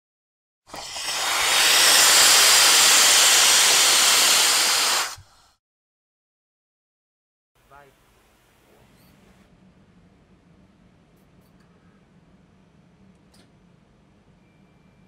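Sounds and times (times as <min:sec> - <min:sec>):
loud hiss of steam: 0:00.7 - 0:05.6.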